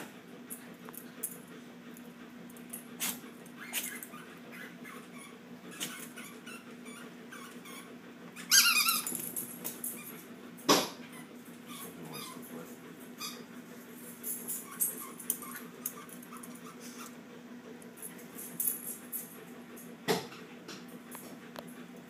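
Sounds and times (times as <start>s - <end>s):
dogs scuffling and clicking: 0.5s - 7.8s, 8.8s - 10.3s, 11.1s - 17.2s.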